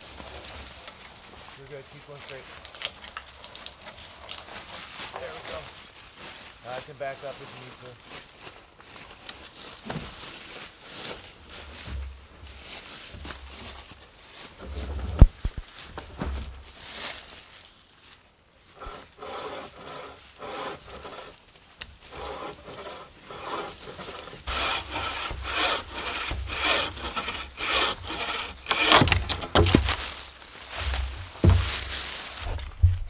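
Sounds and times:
bow saw cutting log: 18.8 - 21.4, 22.0 - 30.2, 30.8 - 32.6.

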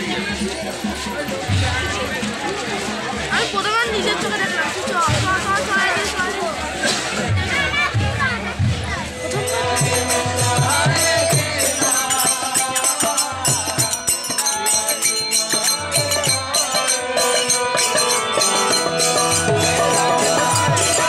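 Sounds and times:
low drum beats: 0.0 - 21.0
voices chanting: 0.0 - 21.0
harmonium: 5.7 - 21.0
hand cymbals clashing: 9.2 - 21.0.

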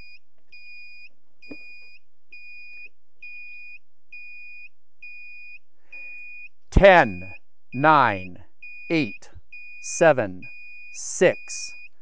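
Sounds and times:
high-pitched warning beeps: 5.3 - 12.0.

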